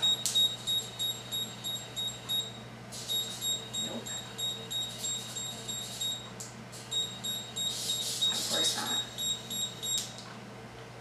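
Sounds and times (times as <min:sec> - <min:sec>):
high-pitched collar beeps: 0:06.9 - 0:10.0.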